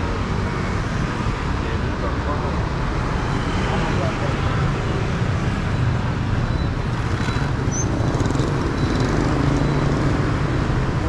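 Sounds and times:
motor scooters passing: 0:02.2 - 0:11.0.

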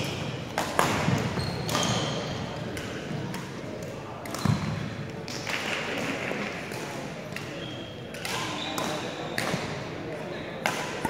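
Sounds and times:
racket hitting shuttlecock: 0:00.0 - 0:02.0, 0:10.6 - 0:11.0.

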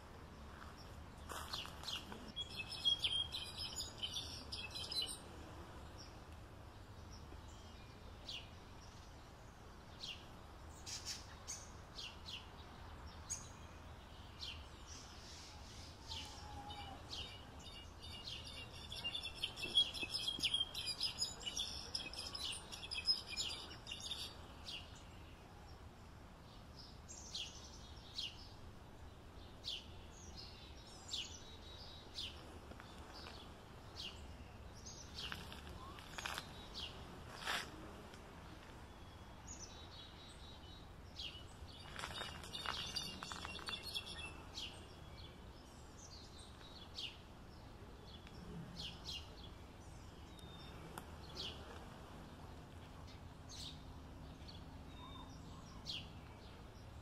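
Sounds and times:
low background hiss: 0:00.0 - 0:57.0
goldfinch chirping and twittering: 0:01.7 - 0:05.2, 0:17.2 - 0:24.4, 0:41.2 - 0:44.7.

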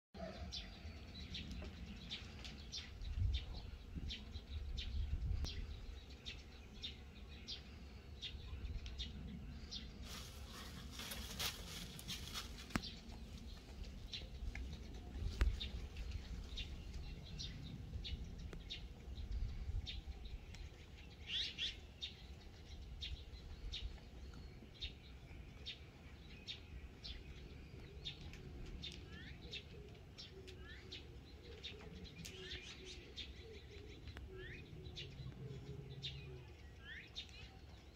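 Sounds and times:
small birds chirping: 0:00.2 - 0:37.9
steady low rumble: 0:00.8 - 0:29.1.

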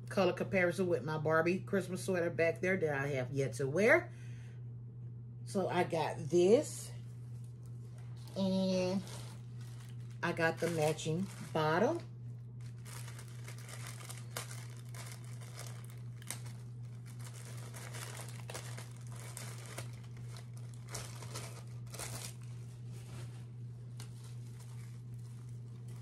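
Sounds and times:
low hum: 0:01.6 - 0:26.0
packaging crinkling: 0:07.4 - 0:26.0.

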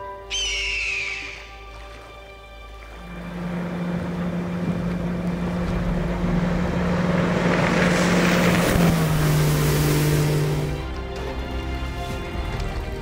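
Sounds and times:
motorboat engine humming: 0:00.0 - 0:13.0
rushing water noise: 0:00.3 - 0:13.0.

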